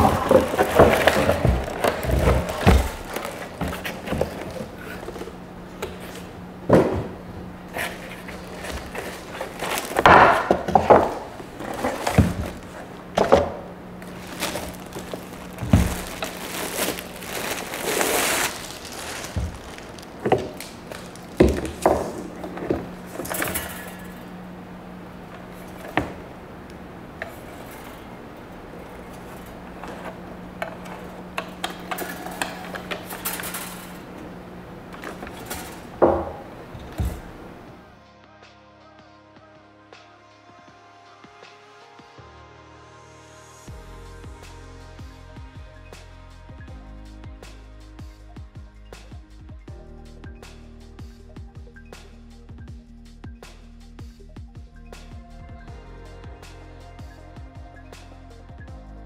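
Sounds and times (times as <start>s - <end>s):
plastic packaging rustling: 0.0s - 24.4s, 25.1s - 37.8s.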